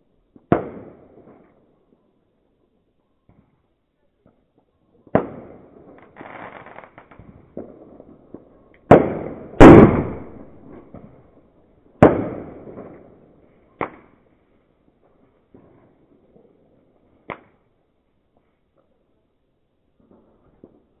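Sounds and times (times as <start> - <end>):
fireworks bangs with echo: 0.3 - 1.6, 4.2 - 14.2
small firework pops: 0.3 - 1.7, 3.2 - 11.2, 12.0 - 14.3, 15.0 - 16.4, 17.2 - 17.7, 19.9 - 21.0
firework hiss: 6.0 - 7.2.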